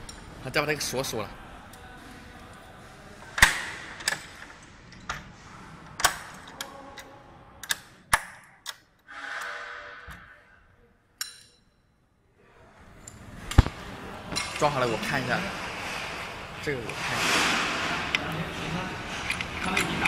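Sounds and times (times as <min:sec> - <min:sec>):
latches clicking and knocking: 0:03.4 - 0:05.3, 0:05.9 - 0:09.0, 0:19.0 - 0:20.0
short scraping sound: 0:09.1 - 0:10.6.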